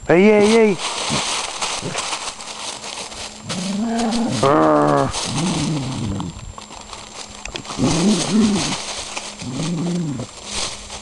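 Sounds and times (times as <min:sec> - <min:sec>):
paws crunching dry leaves: 0:00.1 - 0:11.0.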